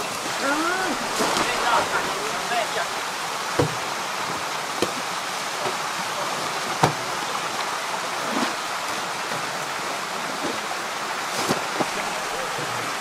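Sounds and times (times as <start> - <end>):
rushing water noise: 0.0 - 13.0
plastic bags slapping wet floor: 0.8 - 2.5.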